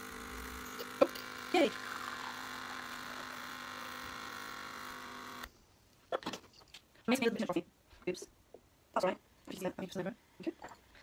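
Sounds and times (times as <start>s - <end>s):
espresso machine pump buzzing: 0.0s - 5.5s.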